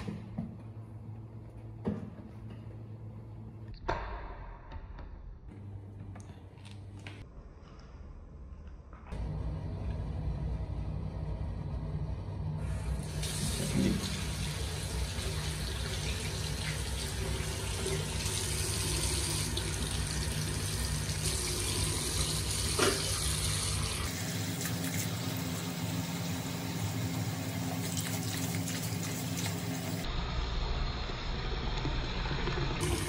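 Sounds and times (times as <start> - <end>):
tap water running into sink: 13.0 - 25.7, 32.5 - 33.0.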